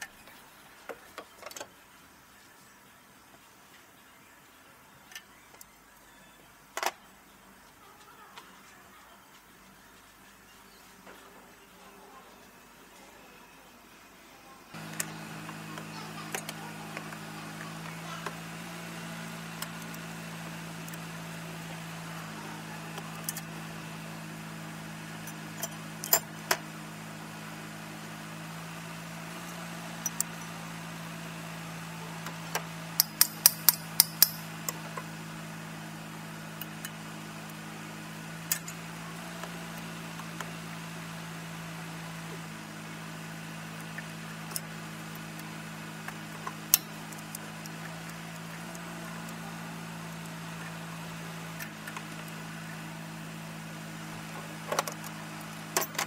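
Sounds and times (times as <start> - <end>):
low hum: 14.8 - 56.0
hand tools clinking on metal: 33.0 - 34.5.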